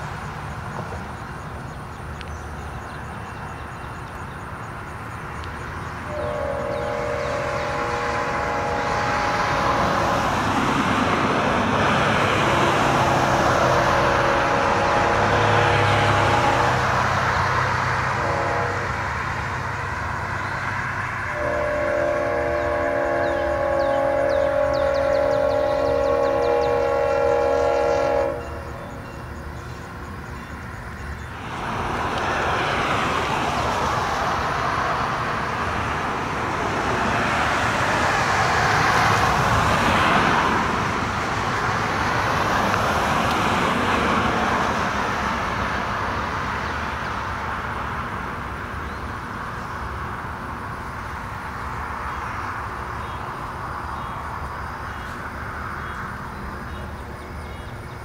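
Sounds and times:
diesel locomotive horn: 6.0s - 30.7s.

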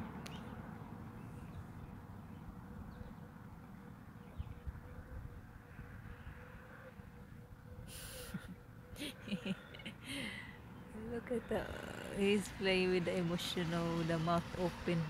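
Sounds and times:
faint steady hum: 0.0s - 15.0s
wind rumble on microphone: 4.2s - 6.4s.

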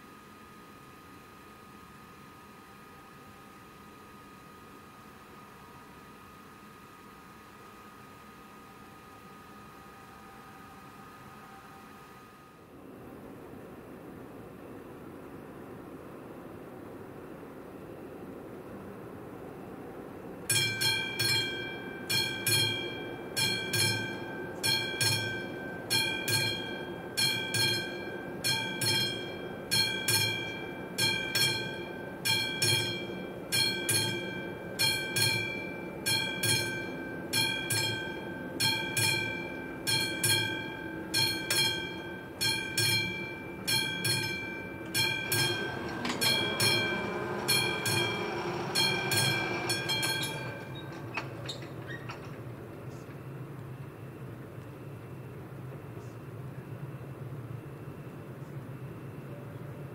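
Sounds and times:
level crossing warning bell: 20.5s - 54.3s.

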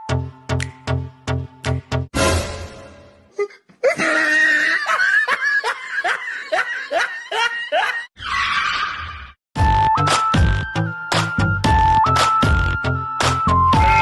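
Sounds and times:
person laughing: 3.3s - 8.1s.

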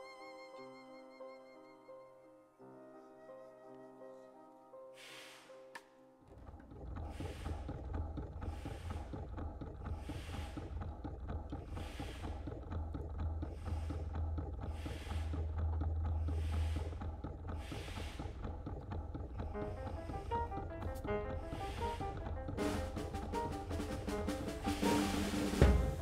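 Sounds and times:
low rumbling drone: 6.4s - 26.0s
rhythmic hissing bursts: 19.4s - 26.0s.

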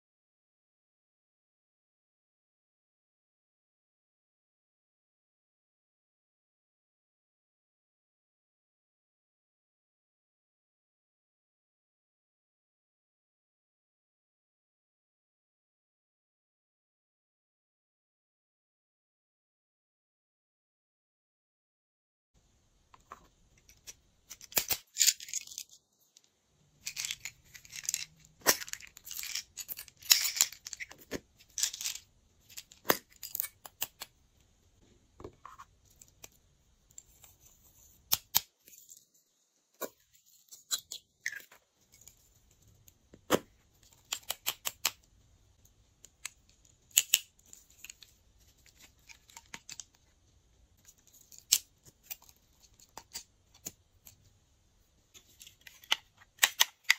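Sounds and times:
beads rattling into a dish: 26.8s - 33.6s.

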